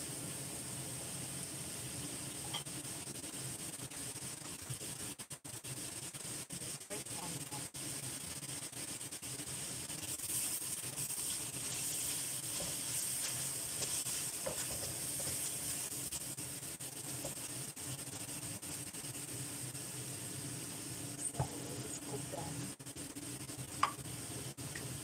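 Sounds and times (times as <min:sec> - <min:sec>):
stir-fry sizzling in a wok: 0:00.0 - 0:25.0
spatula scraping a wok: 0:02.0 - 0:19.7.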